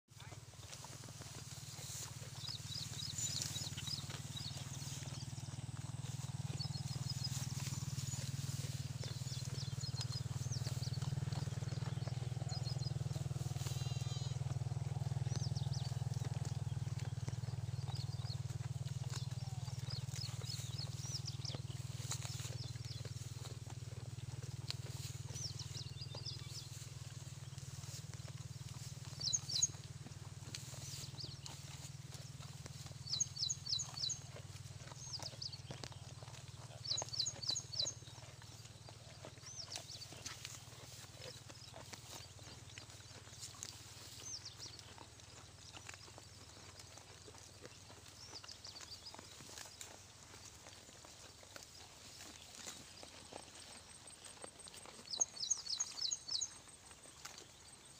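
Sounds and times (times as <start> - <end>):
bird chirping: 1.8 - 23.5, 24.4 - 26.9, 28.7 - 29.8, 30.6 - 46.9, 52.1 - 57.9
rustling clicks in grass: 26.4 - 33.1.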